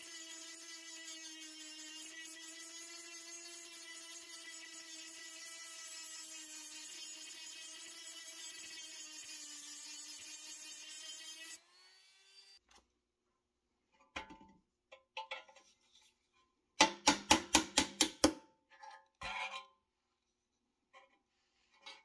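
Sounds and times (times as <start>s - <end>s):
hammer striking metal punch: 16.8s - 18.4s.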